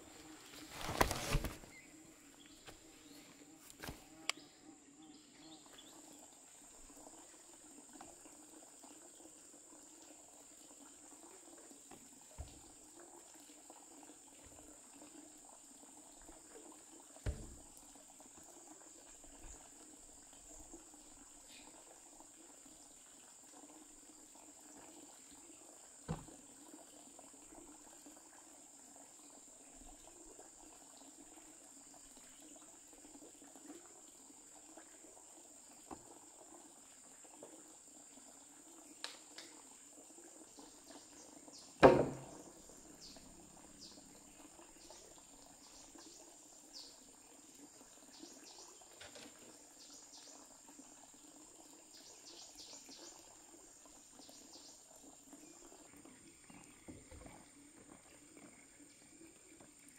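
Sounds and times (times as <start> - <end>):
sharp knocks: 41.8 - 42.4.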